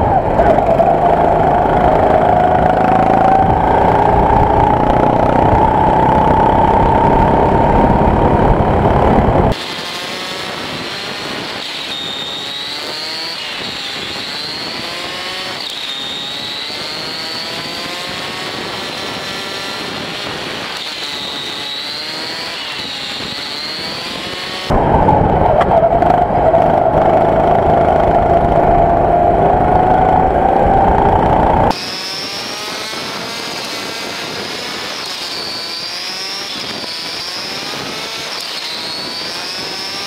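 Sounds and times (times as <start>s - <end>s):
heavy low rumble: 0.0s - 9.6s, 24.7s - 31.7s
go-kart engine revving: 0.0s - 40.0s.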